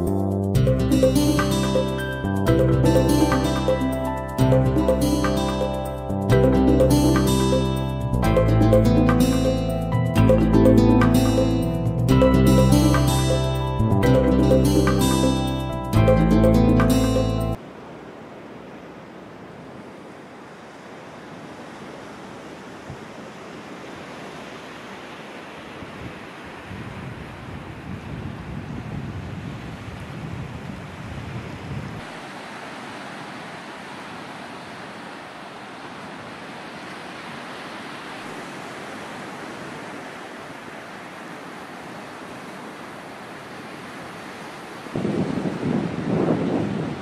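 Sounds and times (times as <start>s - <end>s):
surf washing on sandy beach: 17.6s - 47.0s
wind on microphone: 25.7s - 32.1s, 44.9s - 47.0s.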